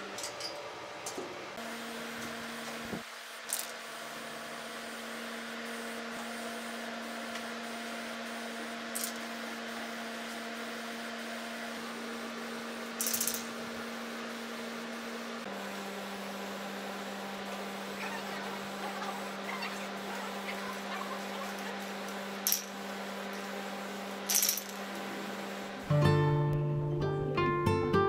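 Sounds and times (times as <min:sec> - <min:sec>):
steady hum: 0:10.6 - 0:27.4
spray paint can hissing: 0:13.0 - 0:13.4.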